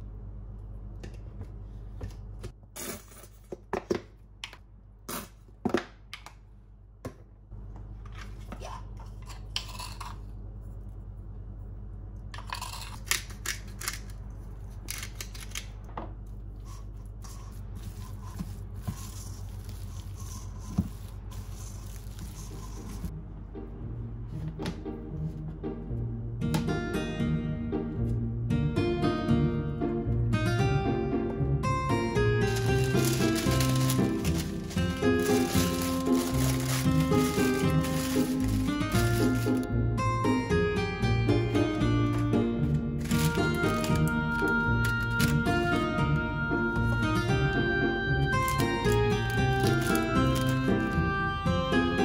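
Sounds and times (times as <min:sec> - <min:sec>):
steady low hum: 0:00.0 - 0:05.6, 0:06.3 - 0:26.6.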